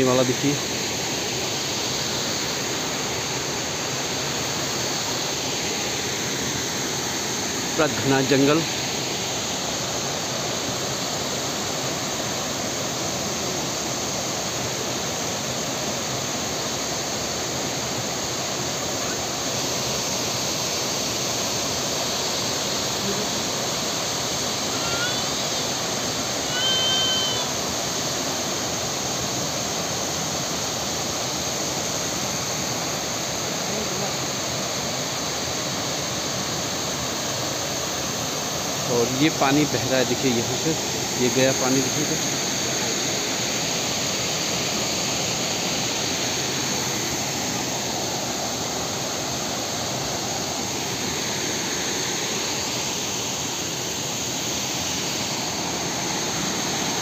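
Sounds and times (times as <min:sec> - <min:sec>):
brief high-pitched call: 0:24.7 - 0:25.2, 0:26.4 - 0:27.5.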